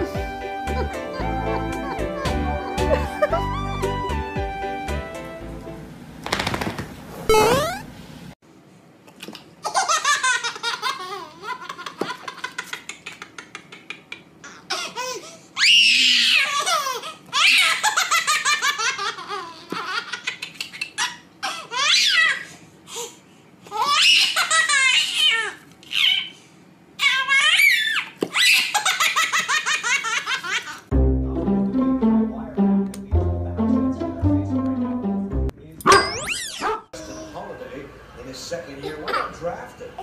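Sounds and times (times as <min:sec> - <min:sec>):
baby laughing: 0:09.6 - 0:15.3, 0:16.3 - 0:22.5, 0:23.7 - 0:26.3, 0:27.0 - 0:30.9.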